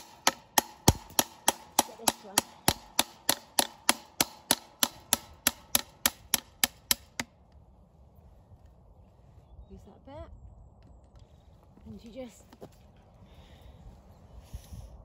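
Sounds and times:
hammer striking metal pliers: 0.0 - 7.3.

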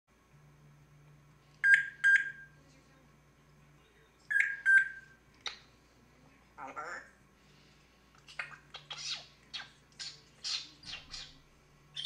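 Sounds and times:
parrot beep-like calls: 4.3 - 5.6.

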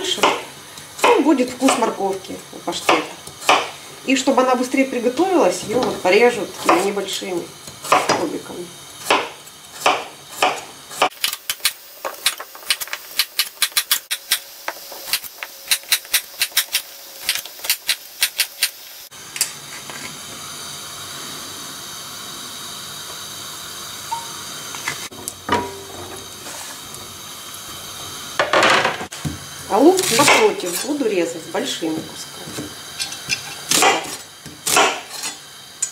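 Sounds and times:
knife chopping on cutting board: 2.9 - 3.7, 7.9 - 8.2, 9.1 - 11.2, 33.7 - 35.1
carrot cubes scraped into pan: 26.4 - 26.8.

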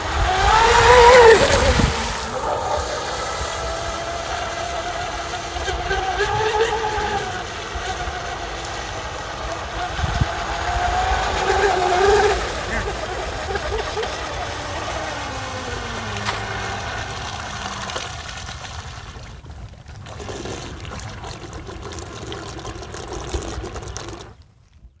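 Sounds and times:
electric boat motor whining: 0.0 - 19.6.

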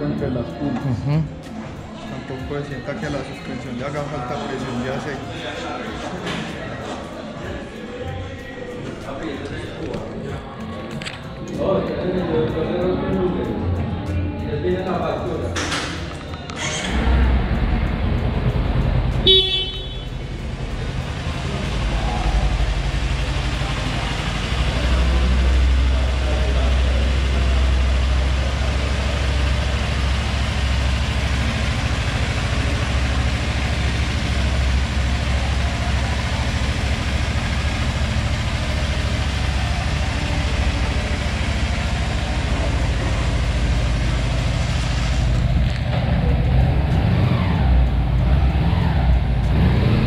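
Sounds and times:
engine idling: 16.5 - 50.0.

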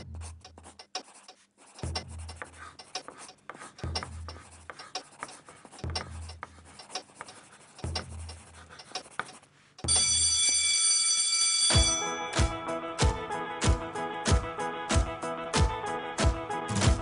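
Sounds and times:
scratchy writing: 0.0 - 9.9
bell ringing: 9.9 - 12.6.

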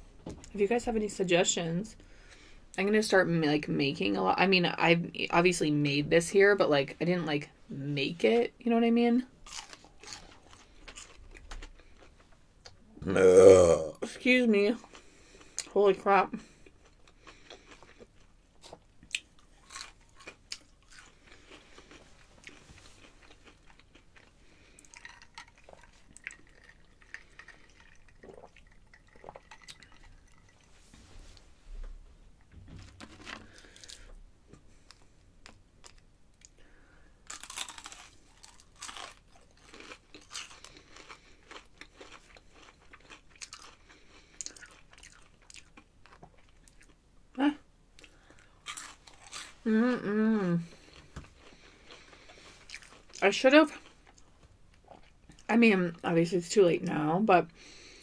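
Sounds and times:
person chewing crunchy food: 9.4 - 13.9, 16.4 - 30.7, 33.0 - 36.6, 37.2 - 47.0, 48.0 - 49.8, 50.6 - 55.5.

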